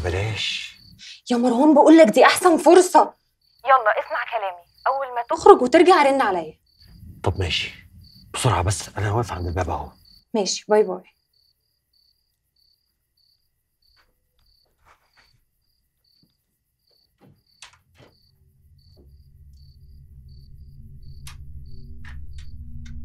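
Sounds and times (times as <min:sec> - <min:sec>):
crickets chirping: 0:00.0 - 0:23.0
soft knocks: 0:16.9 - 0:18.3
low drone: 0:18.3 - 0:23.0.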